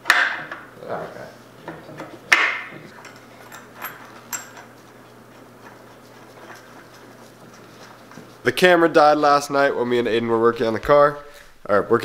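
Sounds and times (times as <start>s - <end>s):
tool clanking on metal: 2.0s - 4.8s.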